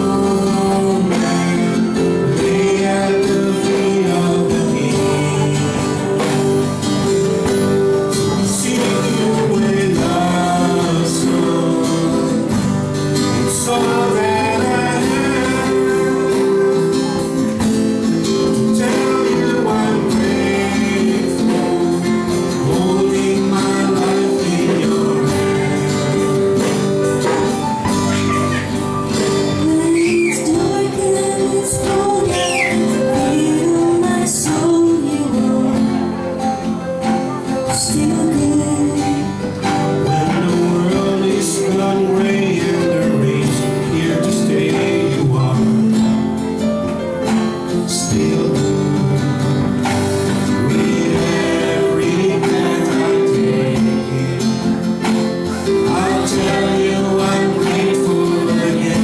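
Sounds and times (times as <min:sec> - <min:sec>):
woman and man singing: 0:00.0 - 0:27.5, 0:28.1 - 0:46.4, 0:47.3 - 0:59.0
strummed acoustic guitar: 0:00.0 - 0:59.0.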